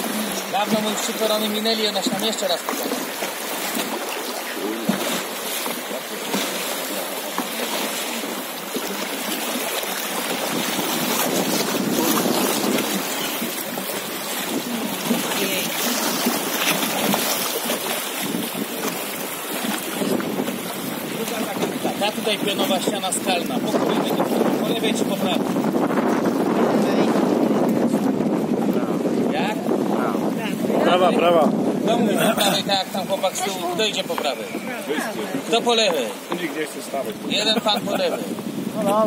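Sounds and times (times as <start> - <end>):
river water rushing over rapids: 0.0 - 27.6.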